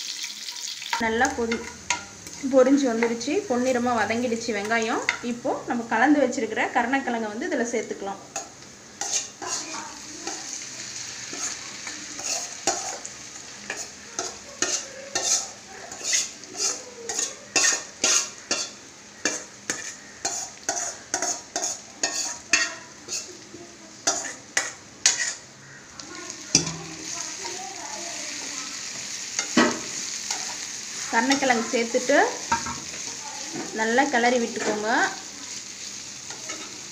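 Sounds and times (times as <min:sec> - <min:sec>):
stirring in pan: 0:00.0 - 0:05.4, 0:08.3 - 0:36.9
oil sizzling: 0:00.0 - 0:36.9
metal spoon scraping steel bowl: 0:09.0 - 0:09.6.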